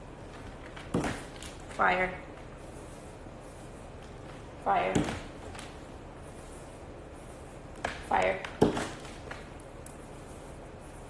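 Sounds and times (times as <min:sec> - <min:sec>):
room tone hiss: 0:00.0 - 0:11.0.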